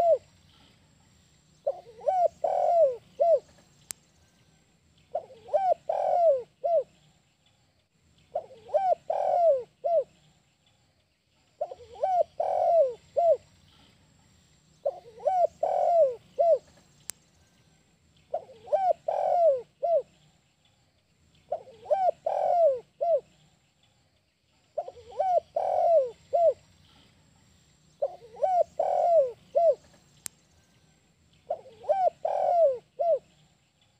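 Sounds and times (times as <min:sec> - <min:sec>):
dove cooing: 0:00.0 - 0:00.3, 0:01.6 - 0:03.6, 0:05.1 - 0:06.9, 0:08.3 - 0:10.1, 0:11.6 - 0:13.4, 0:14.8 - 0:16.8, 0:18.3 - 0:20.1, 0:21.5 - 0:23.3, 0:24.8 - 0:26.6, 0:28.0 - 0:30.0, 0:31.5 - 0:33.4.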